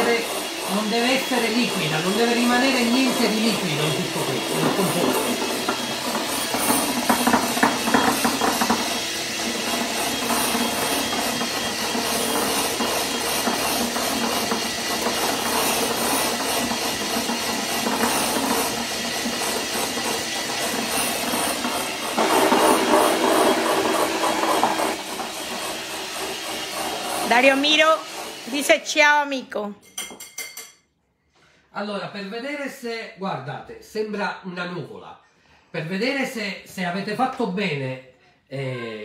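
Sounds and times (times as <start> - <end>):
electric hand mixer whirring: 0.0 - 29.4.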